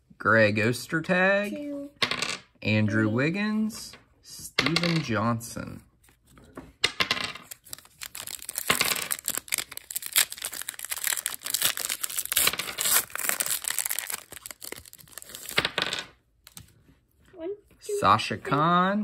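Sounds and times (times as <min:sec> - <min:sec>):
foil wrapper crinkling and tearing: 0:07.5 - 0:15.6.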